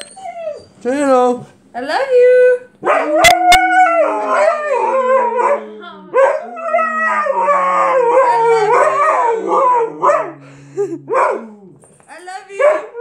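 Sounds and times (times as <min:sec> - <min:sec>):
dog howling: 0:02.1 - 0:11.8.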